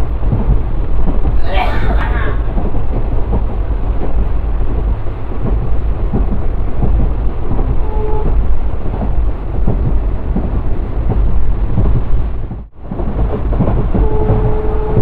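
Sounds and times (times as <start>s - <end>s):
train rumbling and clattering: 0.0s - 15.0s.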